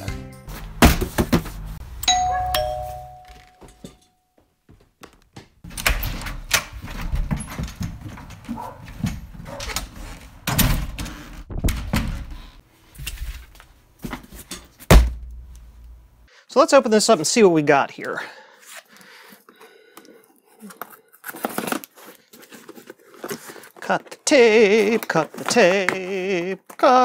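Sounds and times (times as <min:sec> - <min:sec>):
two-note doorbell chime: 0:02.0 - 0:04.1
cardboard handling: 0:20.7 - 0:26.8.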